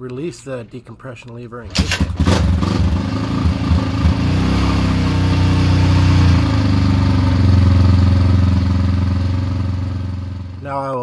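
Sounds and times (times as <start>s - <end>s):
motorcycle engine idling: 2.0s - 4.5s, 5.9s - 10.6s.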